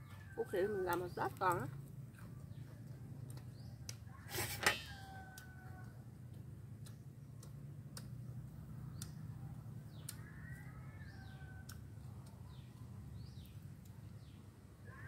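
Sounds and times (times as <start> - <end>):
soft clicks and ticks: 0.9 - 4.2, 5.3 - 14.0.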